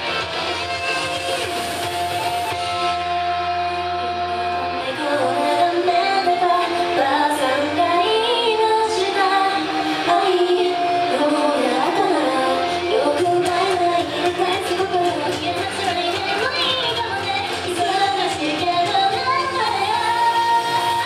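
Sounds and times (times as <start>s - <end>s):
pop backing music: 0.0s - 21.0s
woman singing into microphone: 4.4s - 21.0s.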